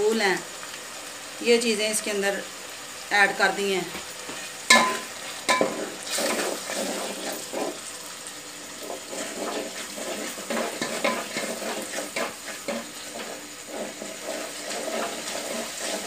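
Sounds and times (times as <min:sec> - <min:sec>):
masala sizzling in oil: 0:00.0 - 0:16.0.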